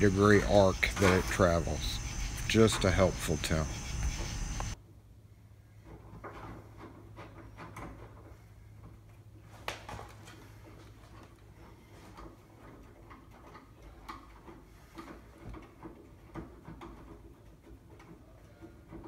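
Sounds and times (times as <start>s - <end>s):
low steady hum: 0.0s - 12.9s.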